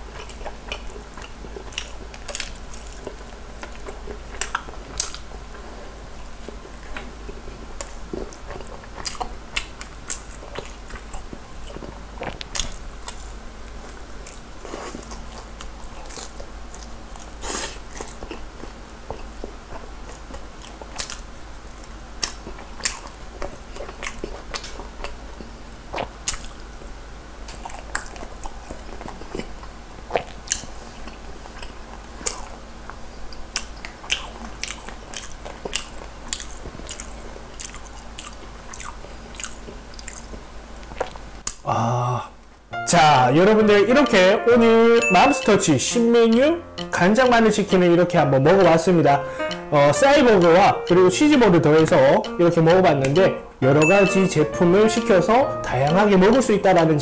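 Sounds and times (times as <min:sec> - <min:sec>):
crunching and chewing fried chicken: 0:00.0 - 0:41.7.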